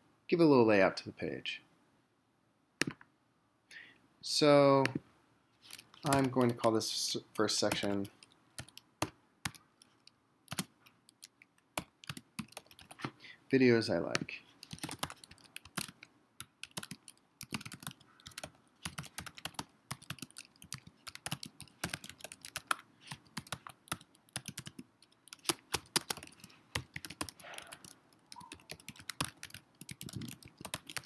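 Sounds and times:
keyboard typing: 5.7 - 6.7, 7.6 - 13.1, 14.6 - 31.0.

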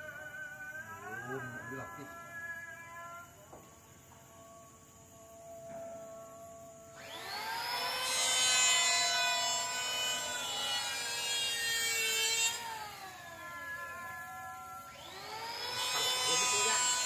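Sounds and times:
power tool cutting wood: 6.9 - 17.0.

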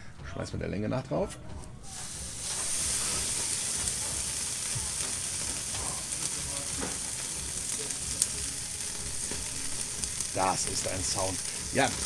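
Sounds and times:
beef fat sizzling on grill: 1.8 - 12.0
fat crackles and pop: 3.4 - 12.0.

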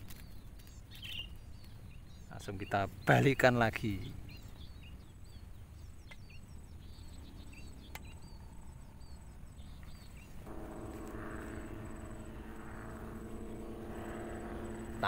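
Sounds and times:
small birds chirping: 0.0 - 15.0
engine hum: 9.8 - 15.0
insect trilling: 10.5 - 15.0.

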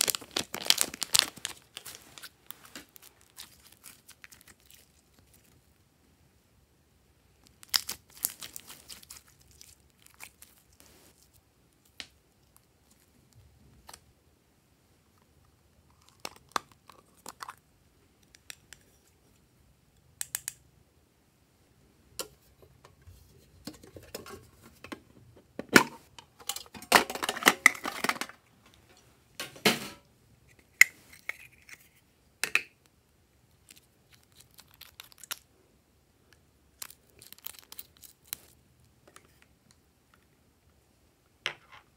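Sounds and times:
sticky clicks and crackles: 0.0 - 5.5, 33.6 - 35.4, 36.8 - 38.6.

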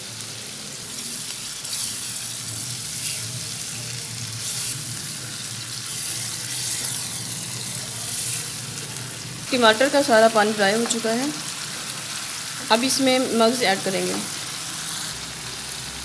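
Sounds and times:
masala sizzling in a pan: 0.0 - 16.0
spatula stirring in a pan: 0.9 - 9.5.

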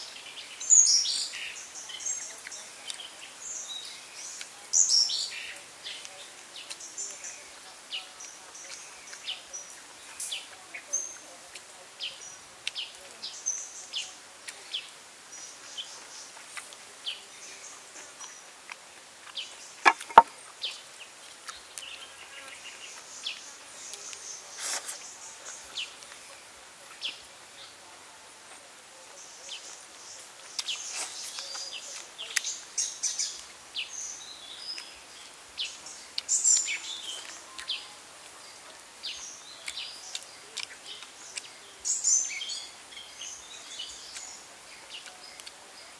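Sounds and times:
birds chirping: 19.3 - 27.8
sharp knock: 19.9 - 20.3
chopsticks clicking while eating: 39.6 - 41.5.

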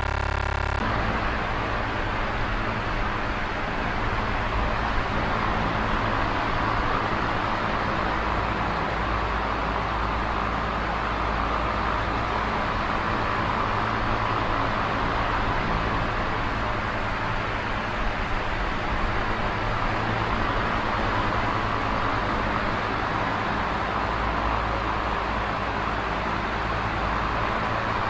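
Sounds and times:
low motor hum: 0.0 - 1.3
electric fan whirring: 0.0 - 3.0.

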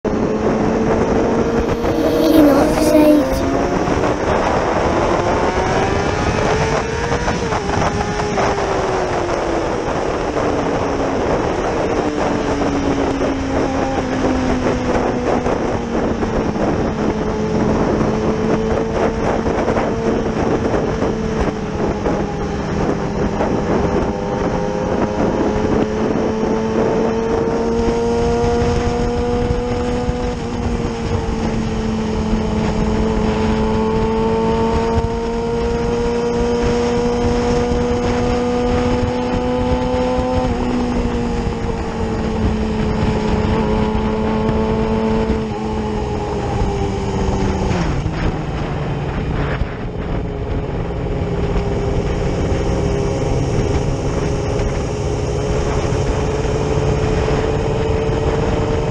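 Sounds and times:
motorcycle engine revving: 23.2 - 58.9.

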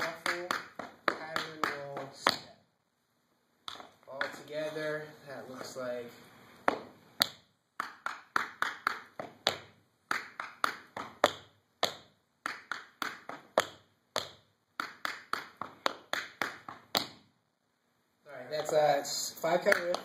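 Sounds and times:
tap shoes on wooden floor: 6.6 - 7.4, 18.5 - 18.9.

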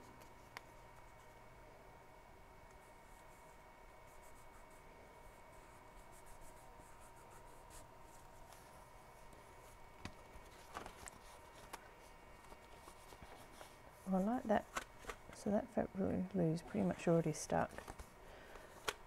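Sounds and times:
faint steady high whine: 0.0 - 19.0
paper rubbing and rustling: 9.6 - 15.1.

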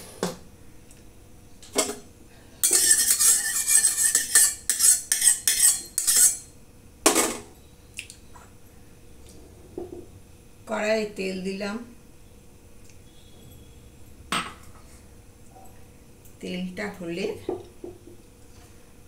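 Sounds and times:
spoon scraping in metal wok: 2.6 - 6.5.

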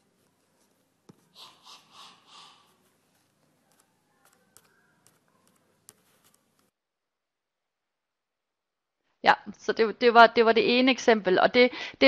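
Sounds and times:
breathy mouth noises: 1.1 - 3.9
short puffs of breath: 1.3 - 2.8.

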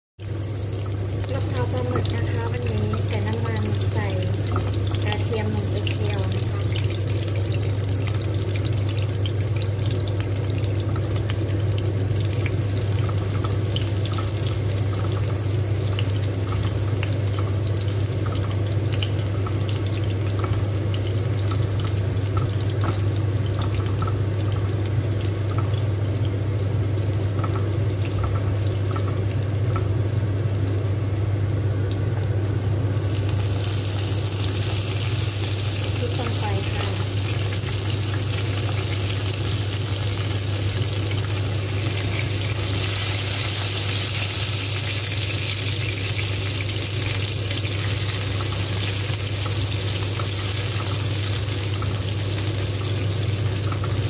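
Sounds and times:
garlic crackling in oil: 0.2 - 54.0
hissing sizzle: 0.2 - 54.0
steady low hum: 0.3 - 43.0.

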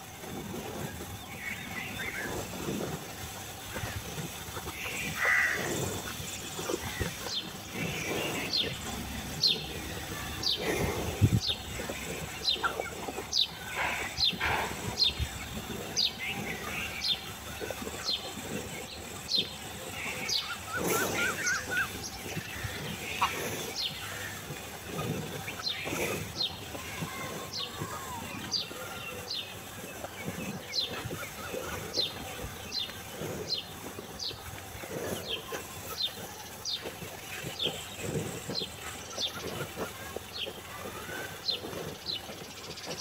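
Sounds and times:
cattle munching fodder: 0.0 - 43.0
bird calling: 4.6 - 34.4.

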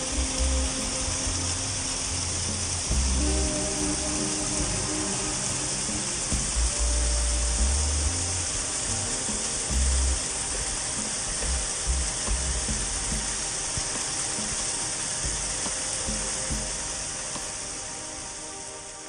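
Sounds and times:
background music with low bass: 0.0 - 19.0.

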